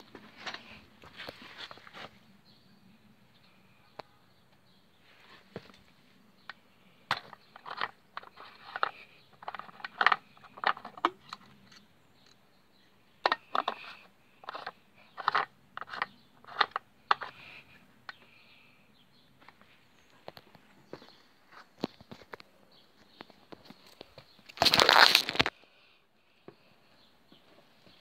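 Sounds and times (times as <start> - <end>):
plastic fuel cap clicks and scrapes: 6.5 - 12.4, 13.2 - 17.4.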